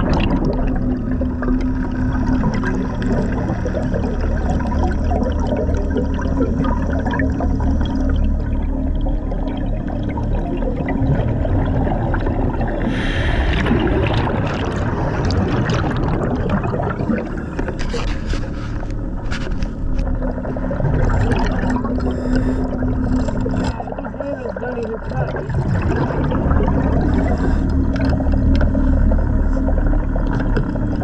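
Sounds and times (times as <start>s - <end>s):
exhaust bubbles: 0.0s - 31.0s
steady low hum: 0.0s - 31.0s
underwater gurgling and rushing: 0.0s - 31.0s
scrapes and knocks: 17.6s - 20.0s.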